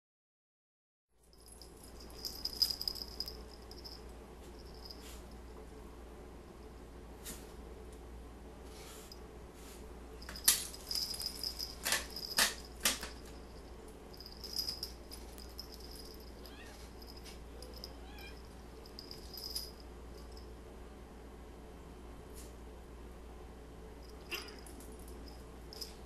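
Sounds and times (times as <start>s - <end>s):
collar bells jingling: 1.3s - 5.4s, 10.2s - 20.5s, 24.0s - 26.0s.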